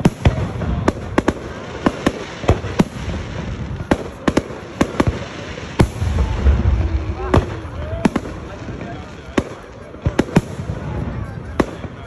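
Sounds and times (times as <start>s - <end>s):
low rumble: 5.9s - 8.6s.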